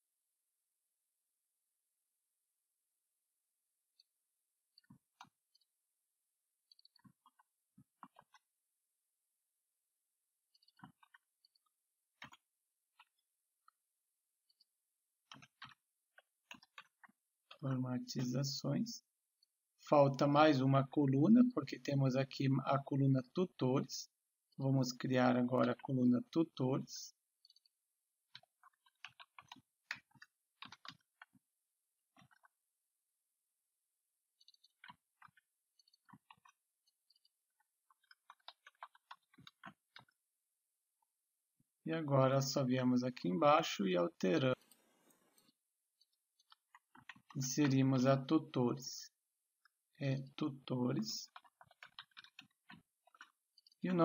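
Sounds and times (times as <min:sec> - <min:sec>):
keyboard typing: 0:28.4 - 0:31.4, 0:34.4 - 0:40.2, 0:50.7 - 0:54.0.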